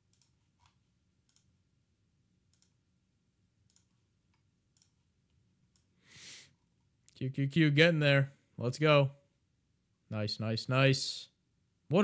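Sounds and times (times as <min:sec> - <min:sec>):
computer mouse clicks: 0:00.0 - 0:01.5, 0:02.5 - 0:02.8, 0:03.6 - 0:05.0
low room hum: 0:00.0 - 0:12.0.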